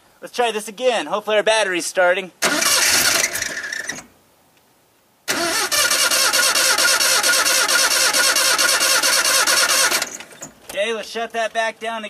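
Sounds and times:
truck engine cranking by starter: 2.4 - 4.1, 5.3 - 10.7.

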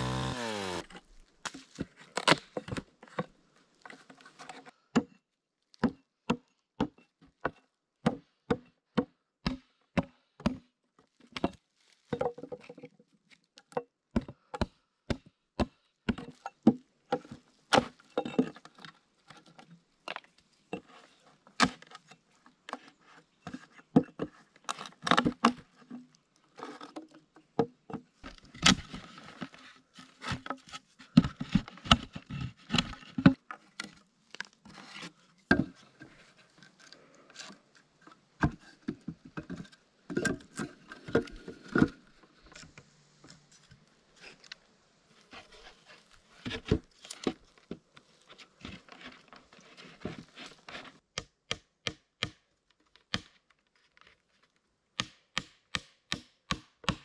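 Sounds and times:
hand tools knocking and scraping wood: 0.0 - 5.2, 5.8 - 10.7, 13.6 - 19.7, 26.6 - 34.0, 34.7 - 36.7, 45.3 - 52.4, 55.0 - 57.0.

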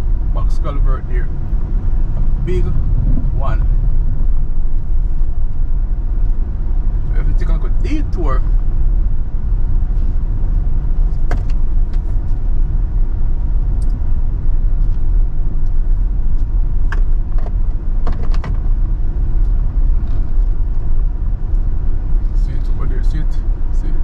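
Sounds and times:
car rumbling over rough road: 0.0 - 24.0
knocks and rattles over bumps: 16.8 - 18.8.

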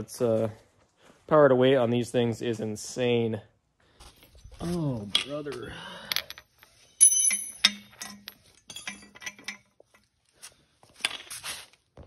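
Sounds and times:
metal arm clinking on concrete: 5.0 - 10.2.

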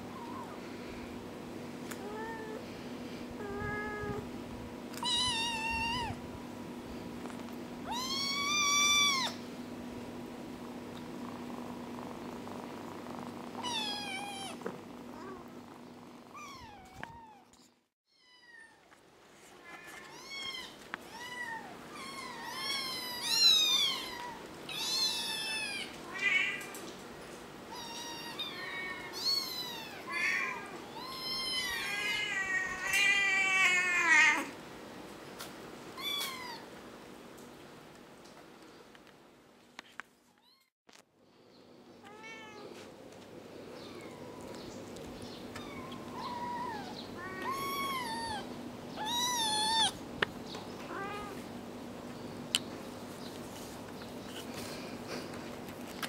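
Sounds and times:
kittens meowing: 5.0 - 6.2, 7.9 - 9.4, 13.6 - 15.5, 16.3 - 18.8, 19.7 - 26.7, 27.7 - 34.5, 45.5 - 50.0.

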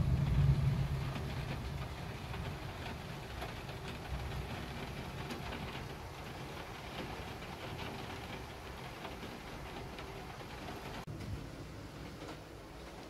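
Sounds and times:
low rumble: 0.0 - 5.4
heavy rain pattering: 0.0 - 13.0.

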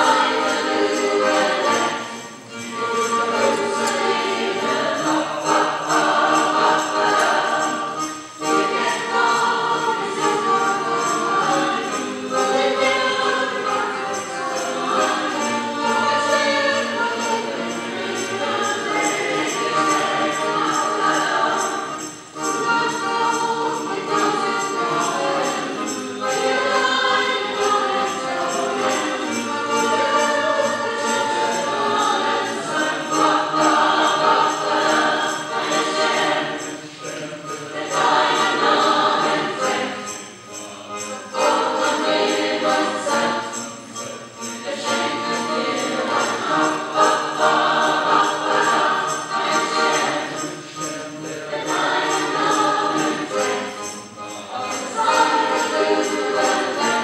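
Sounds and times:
choir singing: 0.0 - 57.0
jingling percussion: 0.0 - 57.0.

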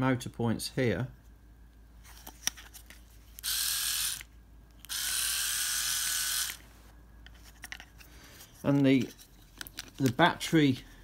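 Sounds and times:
electric shaver motor buzzing: 3.4 - 4.3, 4.9 - 6.7.

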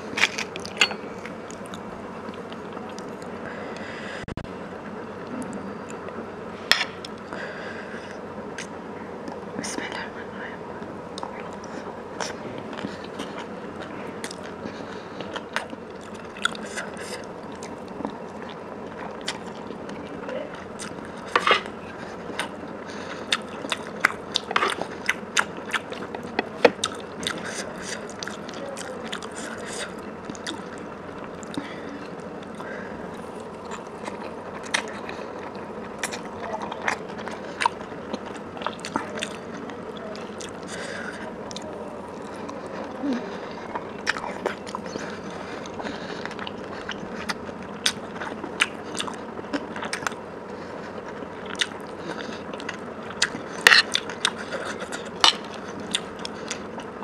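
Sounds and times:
chewing and biting: 11.2 - 32.7, 33.4 - 57.0.

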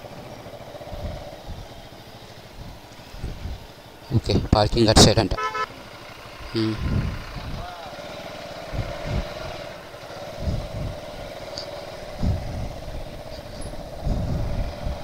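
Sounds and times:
motorcycle engine running: 0.0 - 4.4, 5.4 - 15.0
low thumps on dirt track: 10.4 - 15.0.

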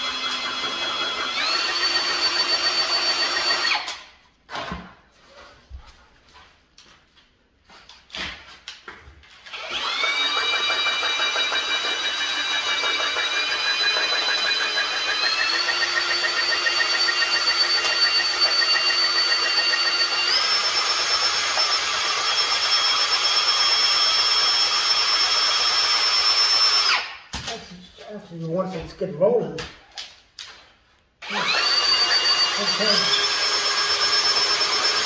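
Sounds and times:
drill motor whine cutting sheet metal: 0.0 - 3.8, 9.5 - 27.0, 31.2 - 35.0.

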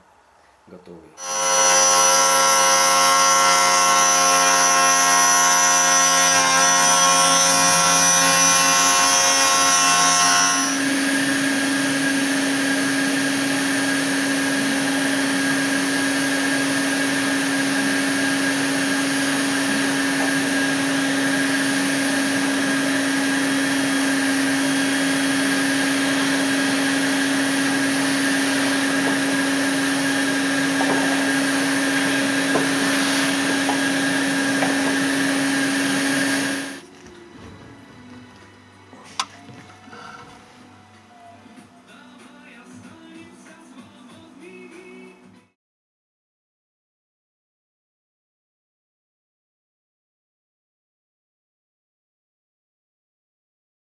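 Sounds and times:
router spindle whining: 1.2 - 36.8
shop vacuum humming: 1.2 - 40.8
chip extraction running: 10.8 - 36.8.

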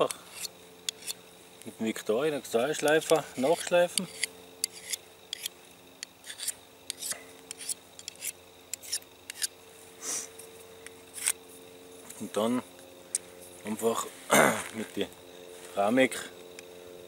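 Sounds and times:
faint steady hum: 0.0 - 17.0
sharpener scraping knife blade: 0.3 - 1.2, 2.7 - 9.5, 11.1 - 11.4.

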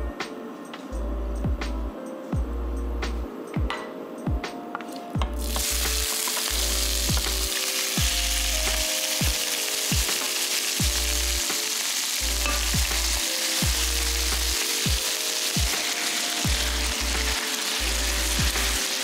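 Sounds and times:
pork sizzling in caramel: 5.3 - 19.0.

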